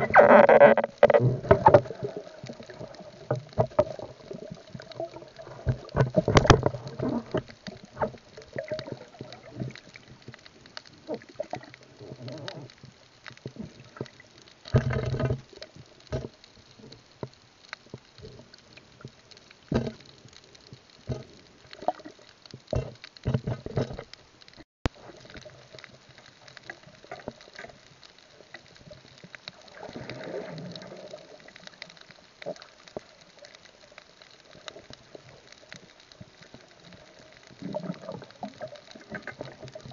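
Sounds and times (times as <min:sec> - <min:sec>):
underwater water noise: 0:00.0 - 0:39.9
bumps and rustles: 0:03.2 - 0:10.4, 0:21.0 - 0:25.5.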